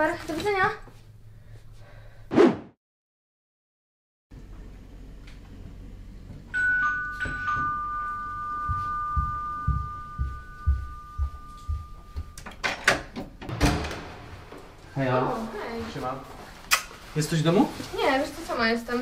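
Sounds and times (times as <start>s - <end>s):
two-tone doorbell chime: 6.5s - 12.6s
footsteps on hard floor: 8.6s - 12.4s.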